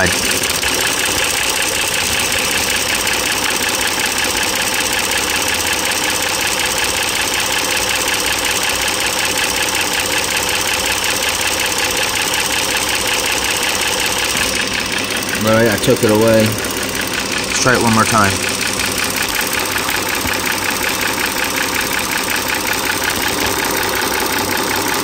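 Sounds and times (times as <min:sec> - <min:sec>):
car engine idling: 0:00.0 - 0:25.0
rapid valvetrain tapping: 0:00.0 - 0:25.0.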